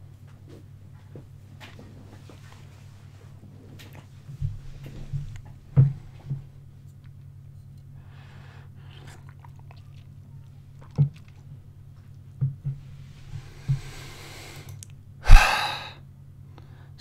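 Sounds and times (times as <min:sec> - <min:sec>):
breathy exhale: 0:13.4 - 0:16.0
man swallowing: 0:15.2 - 0:16.0.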